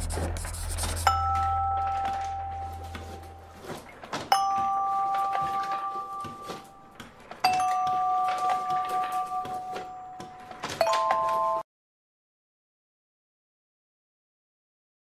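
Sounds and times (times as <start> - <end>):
marker scratching on whiteboard: 0.0 - 1.4
two-note bell chime: 1.1 - 6.8, 7.5 - 11.6.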